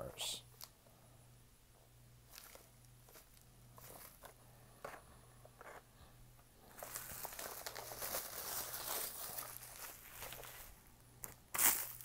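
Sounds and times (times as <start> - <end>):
plastic packaging crinkling: 2.2 - 4.4, 6.6 - 12.0.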